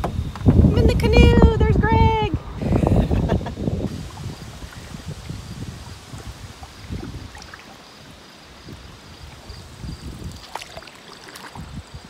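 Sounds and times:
wind on microphone: 0.0s - 10.8s, 11.4s - 12.0s
paddle strokes: 3.9s - 9.5s, 10.2s - 11.8s
water lapping at hull: 3.9s - 12.0s.

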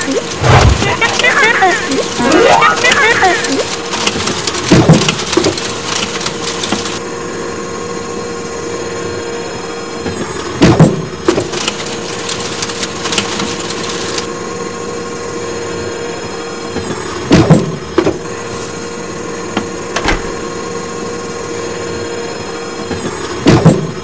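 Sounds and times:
mechanical hum: 0.0s - 24.0s
clanks and thuds: 19.9s - 20.4s.

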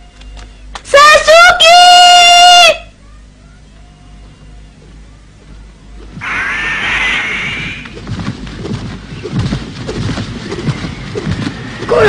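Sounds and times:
cartoon bird of prey screech: 6.2s - 7.8s.

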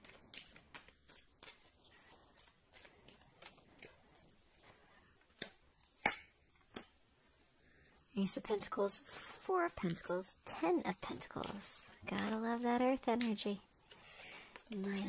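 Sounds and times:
cards shuffling: 0.0s - 6.8s, 11.0s - 15.0s.

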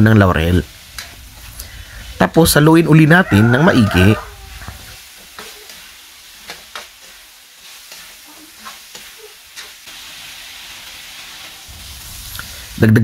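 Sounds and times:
meat sizzling in oil: 0.0s - 13.0s
metal turner scraping pan: 4.6s - 9.8s.

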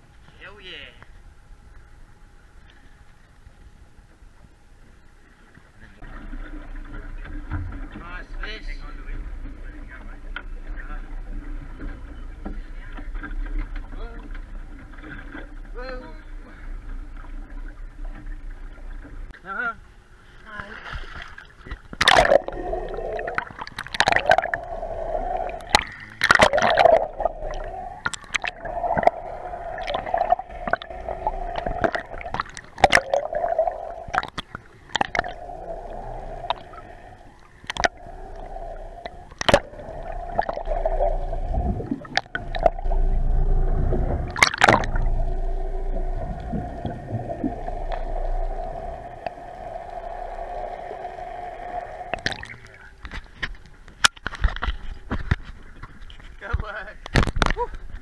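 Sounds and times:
steady hum: 0.0s - 58.0s
water gurgling underwater: 21.0s - 53.5s
low rumble: 22.2s - 53.1s.

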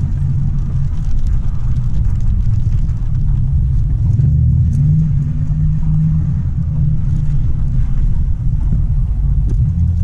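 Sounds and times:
car engine rumble: 0.0s - 10.0s
tyres on wet road: 0.0s - 10.0s.

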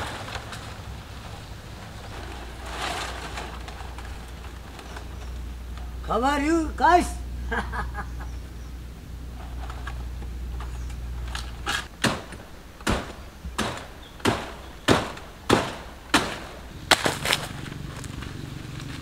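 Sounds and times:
blade chopping palm stalk: 11.6s - 18.1s.

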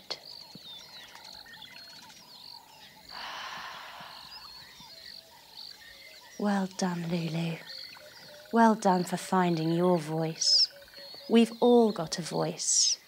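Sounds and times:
small birds chirping: 0.0s - 13.0s
breathy rush of noise: 3.1s - 4.8s.

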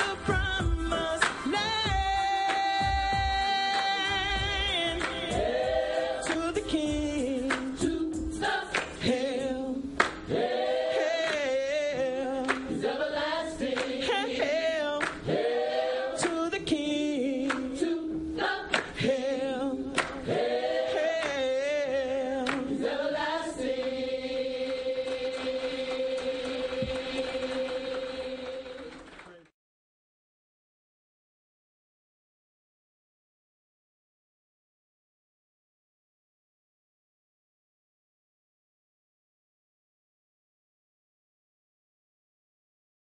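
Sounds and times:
hand claps: 1.2s - 1.6s, 5.0s - 5.4s, 6.3s - 6.6s, 7.4s - 7.8s, 8.7s - 9.0s, 10.0s - 10.3s, 11.2s - 11.6s, 12.4s - 12.8s, 13.7s - 15.3s, 16.2s - 16.5s, 17.4s - 17.8s, 18.7s - 19.0s, 19.9s - 20.3s, 21.1s - 21.5s, 22.4s - 22.8s, 24.6s - 29.5s
choir singing in harmony: 3.5s - 29.1s.

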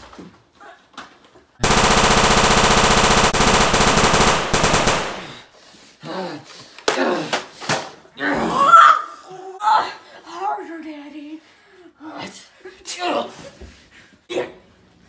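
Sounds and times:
automatic gunfire: 1.6s - 5.4s.

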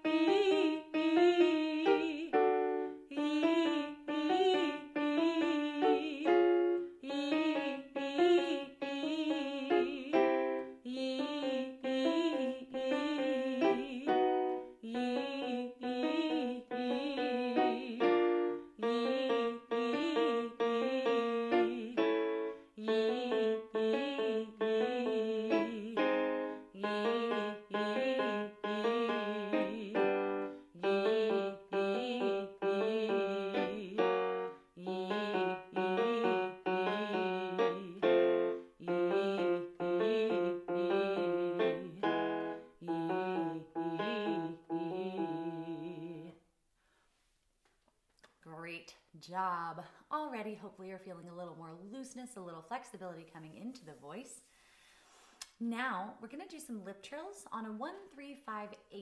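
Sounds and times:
piano chords: 0.0s - 46.3s
woman singing vocal runs: 0.0s - 46.4s.

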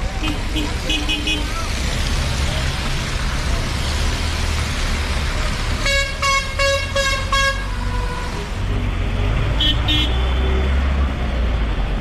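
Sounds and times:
engine and road rumble: 0.0s - 12.0s
vehicle horn honking: 9.6s - 10.6s.

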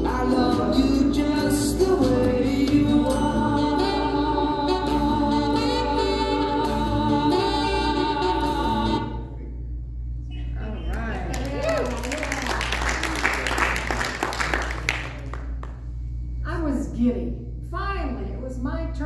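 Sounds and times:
instrumental backing music: 0.0s - 9.4s.

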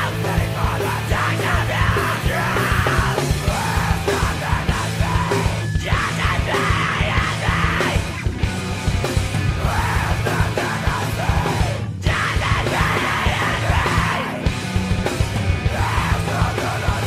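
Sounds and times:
person yelling vocals: 0.0s - 8.2s, 9.6s - 14.4s
heavy rock song: 0.0s - 17.0s
pounding drums: 0.0s - 17.0s.

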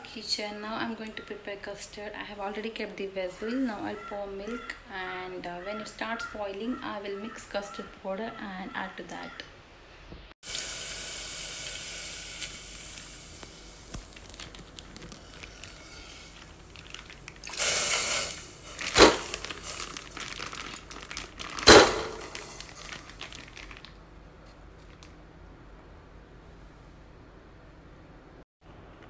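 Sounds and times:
plastic pouch crinkling: 13.3s - 25.1s
milk pouring into steel pot: 15.0s - 20.8s.

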